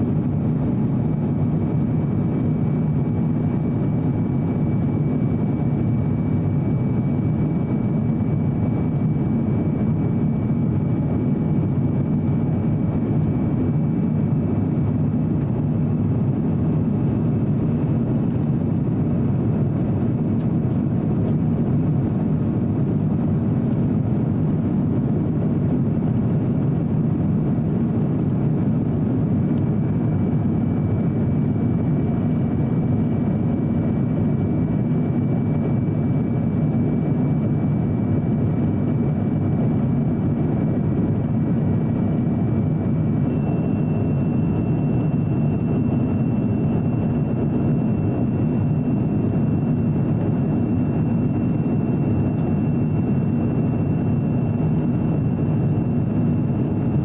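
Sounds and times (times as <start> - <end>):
aircraft cabin engine rush: 0.0 - 57.0.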